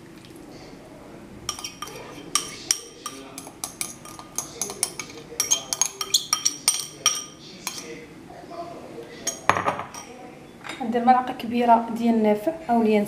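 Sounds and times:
metal spoon scraping ceramic bowl: 0:01.5 - 0:08.0.

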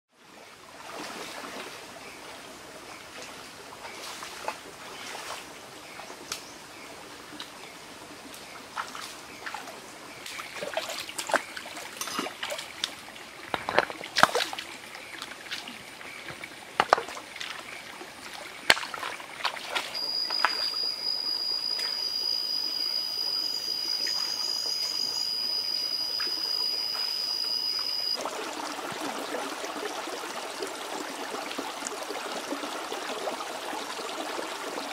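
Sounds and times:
stream trickling over rocks: 0:00.2 - 0:34.9
hands splashing in water: 0:13.6 - 0:14.7, 0:18.6 - 0:20.7
high-pitched whine: 0:20.0 - 0:28.2.

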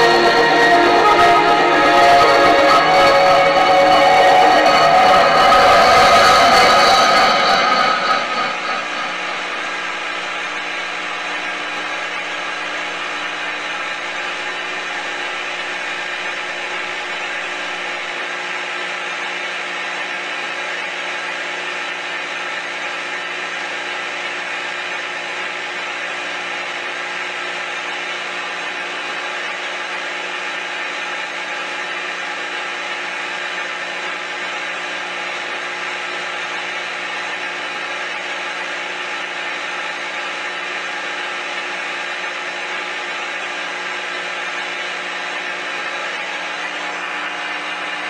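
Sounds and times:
steady buzzing drone: 0:00.0 - 0:18.2.

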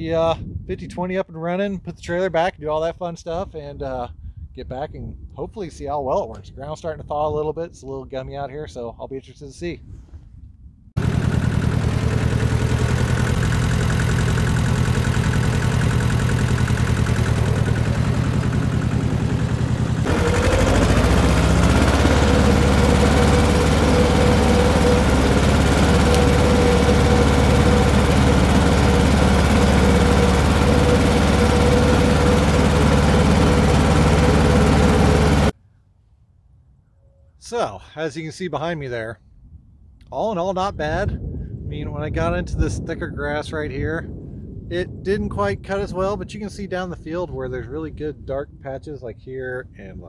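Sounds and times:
steady whine: 0:11.0 - 0:35.5
tractor engine running: 0:11.0 - 0:35.5.

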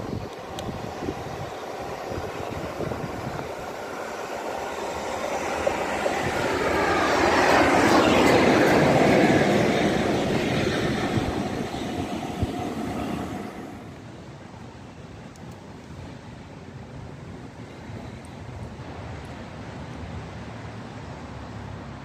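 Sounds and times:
steam train passing: 0:00.0 - 0:15.2.

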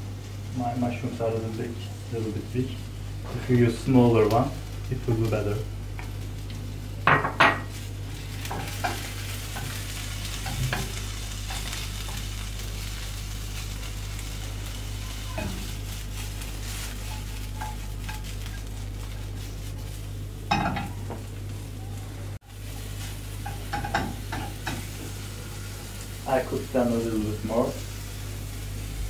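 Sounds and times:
vegetables sizzling in a frying pan: 0:00.0 - 0:29.0
wooden spatula scraping a pan: 0:14.9 - 0:20.0.

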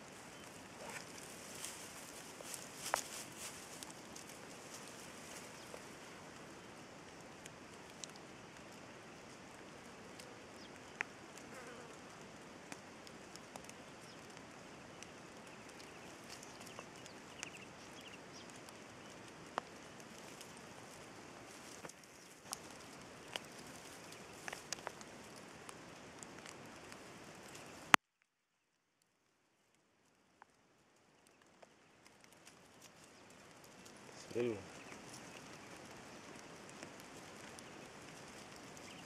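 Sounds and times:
faint steady hiss: 0:00.0 - 0:39.0
clicks and scratches of digging: 0:00.8 - 0:05.0.

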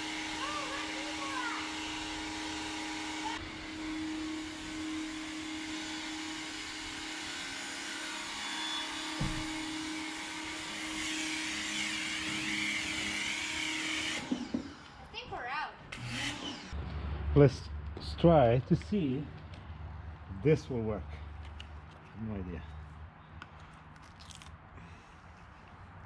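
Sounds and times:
pressure washer motor hum: 0:00.0 - 0:15.0.

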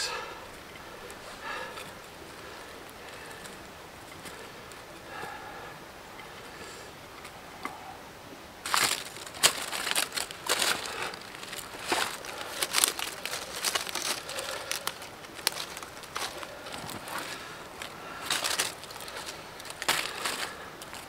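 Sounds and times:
dry leaves rustling and crackling: 0:00.0 - 0:05.4, 0:08.6 - 0:21.0
twigs snapping: 0:08.6 - 0:21.0.

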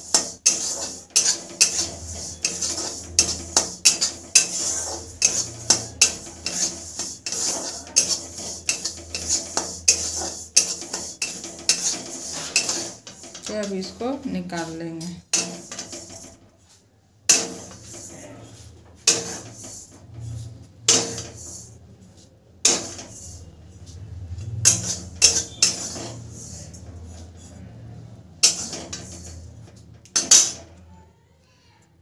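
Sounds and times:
metal clanking on metal: 0:00.0 - 0:13.8, 0:24.5 - 0:26.3
metal spatula scraping pan: 0:00.0 - 0:30.8.

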